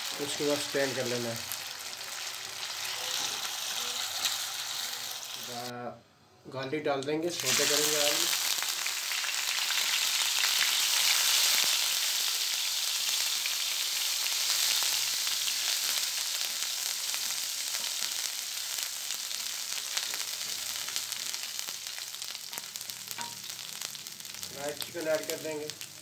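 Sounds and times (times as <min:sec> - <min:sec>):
garlic sizzling in oil: 0:00.0 - 0:05.7, 0:07.3 - 0:26.0
small crackles: 0:17.2 - 0:26.0.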